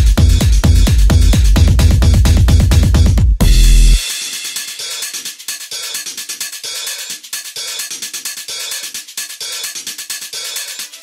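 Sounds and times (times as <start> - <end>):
electronic drum beat music: 0.0 - 11.0.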